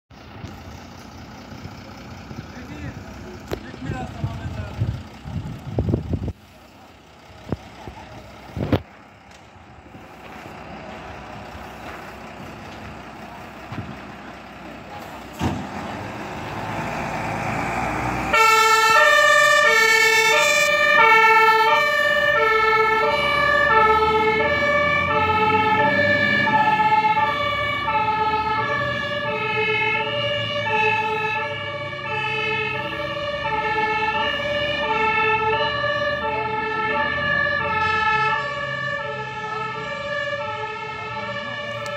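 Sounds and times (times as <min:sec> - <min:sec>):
fire engine diesel engine running: 0:00.1 - 0:41.9
two-tone siren: 0:18.2 - 0:41.9.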